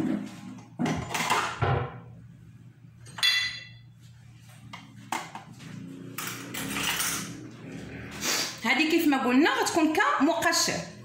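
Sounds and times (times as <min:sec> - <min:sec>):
tableware clinking: 0:03.0 - 0:03.9, 0:06.1 - 0:07.4.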